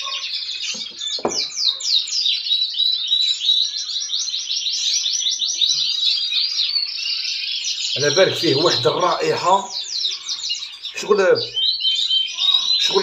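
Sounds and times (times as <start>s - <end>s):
finches chirping: 0.0s - 13.0s.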